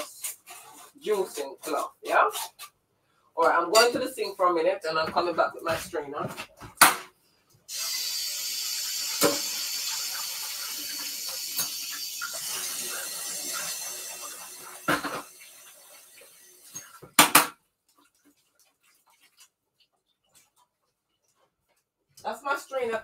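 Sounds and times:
tap running into sink: 8.9 - 15.4.

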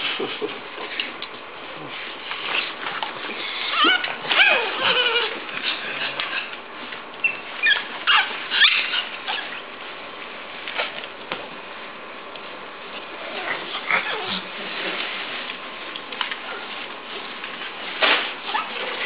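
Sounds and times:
puppies whining and squealing: 1.7 - 9.7, 13.2 - 15.0, 18.4 - 19.0.

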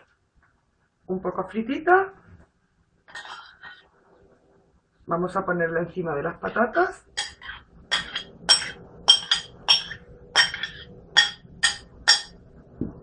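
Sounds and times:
metal spoon clinking on ceramic bowl: 7.2 - 12.4.

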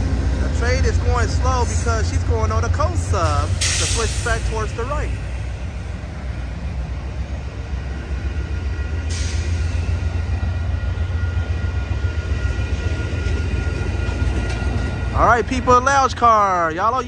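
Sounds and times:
train wheels rumbling on rails: 0.0 - 17.0
faint high squeal: 11.1 - 15.0.

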